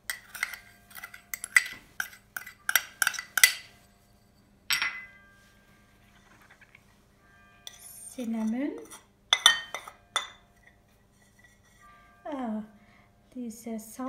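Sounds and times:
metal spoon clinking on ceramic bowl: 0.1s - 5.2s, 7.6s - 11.7s.

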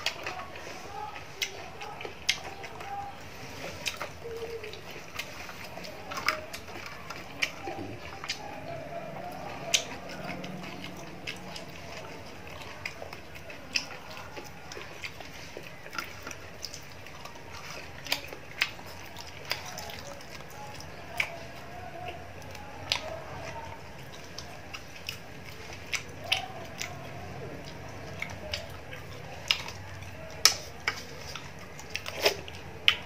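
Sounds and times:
chewing fried fish: 0.0s - 33.0s.

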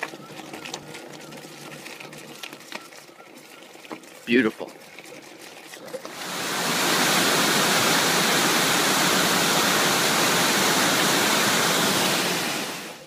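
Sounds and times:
waterfall rushing over rocks: 6.1s - 13.0s.

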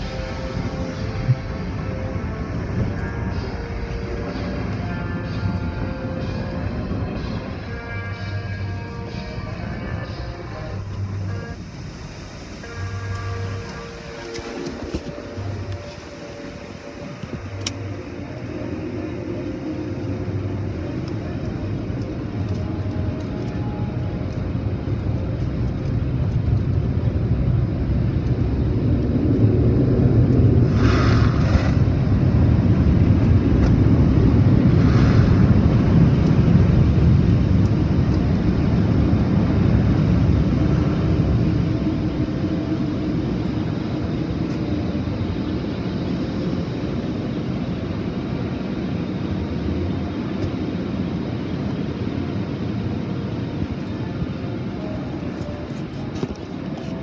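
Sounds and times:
car wash water spray rushing: 30.4s - 32.9s.

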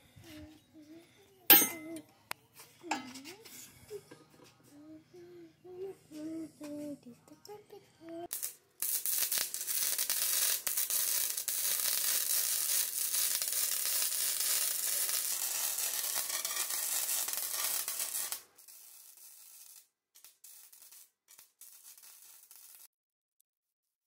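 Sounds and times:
arc welding crackling hiss: 8.2s - 22.9s.

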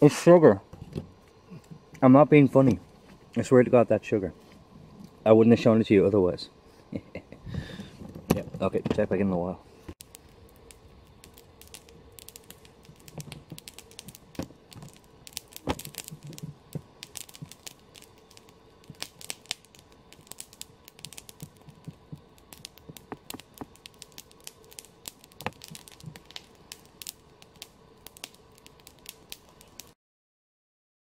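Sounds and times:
campfire crackling and popping: 9.9s - 30.0s.

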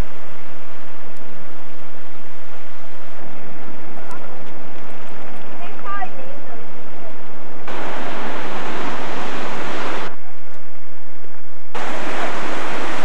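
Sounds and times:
surf breaking on rocky shore: 7.7s - 10.2s, 11.8s - 13.0s.

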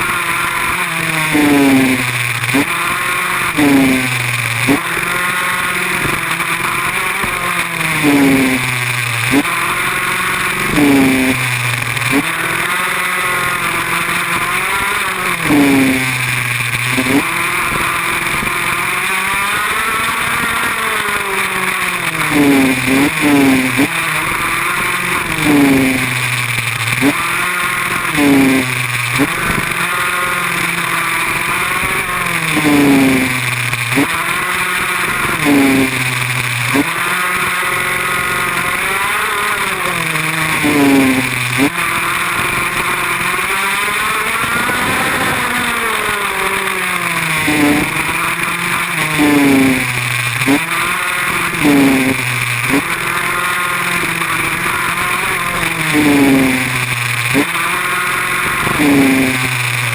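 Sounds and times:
small motorbike engine revving: 0.0s - 59.9s.

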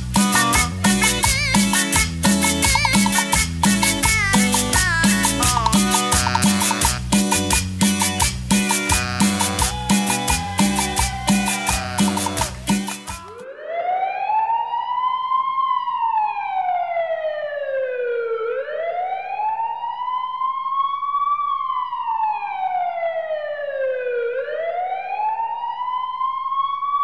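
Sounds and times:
police siren wailing: 9.2s - 27.0s.

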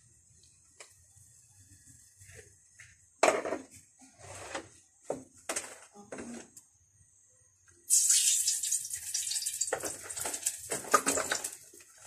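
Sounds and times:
oil hissing in a pan: 7.9s - 12.0s.

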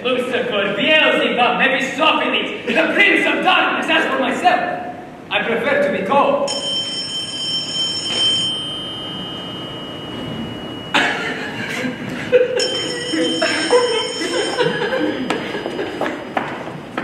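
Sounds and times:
faint high-pitched tone: 8.2s - 16.5s
audience laughter: 11.0s - 16.2s.

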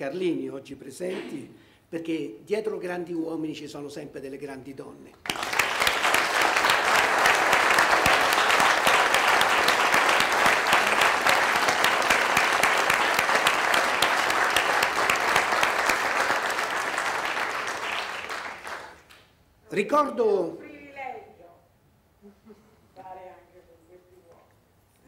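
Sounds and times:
audience applauding: 5.2s - 19.2s.

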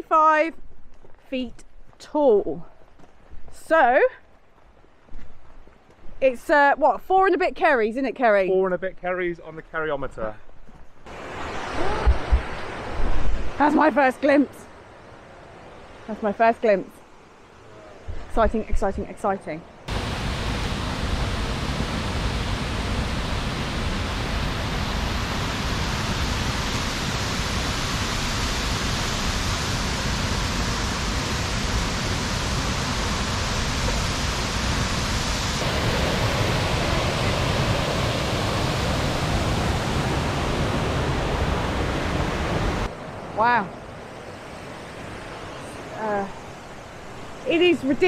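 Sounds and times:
waterfall roaring: 11.1s - 14.5s, 19.9s - 48.0s.

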